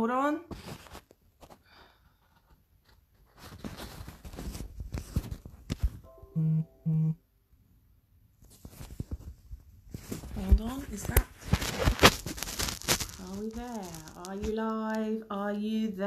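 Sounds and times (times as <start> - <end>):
short electronic beeps: 6.4 - 7.2
phone rubbing on microphone: 8.5 - 14.7.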